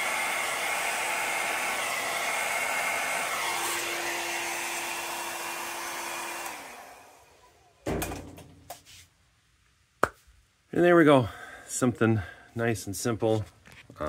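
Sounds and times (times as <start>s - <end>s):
hair dryer blowing: 0.0s - 7.7s.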